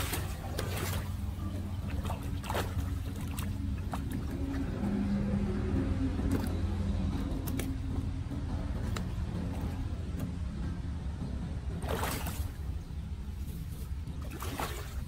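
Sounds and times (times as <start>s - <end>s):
short splashes: 0.0s - 4.8s, 11.8s - 12.8s, 13.5s - 15.0s
sloshing through floodwater: 0.0s - 7.9s, 11.8s - 12.8s, 13.6s - 15.0s
steady low hum: 0.0s - 15.0s.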